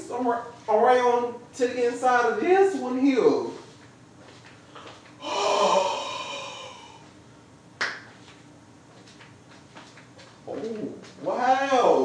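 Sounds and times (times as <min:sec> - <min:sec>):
person gasping: 0:05.2 - 0:07.1.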